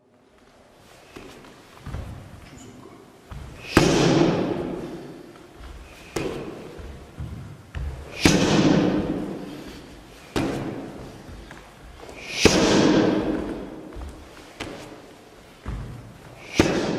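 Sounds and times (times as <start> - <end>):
kicks smacking a kick shield: 3.7 - 4.7, 8.2 - 9.2.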